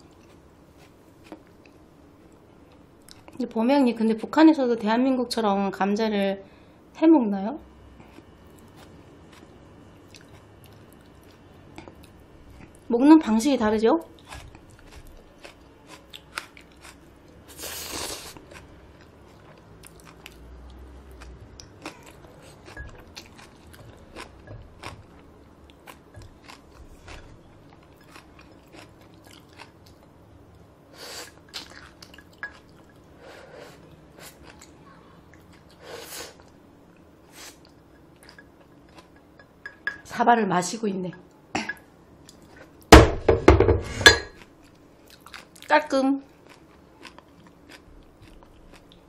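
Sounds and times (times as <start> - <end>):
person chewing noodles: 7.9 - 12.8, 14.1 - 30.2, 30.9 - 39.6, 44.4 - 45.7, 46.3 - 49.0.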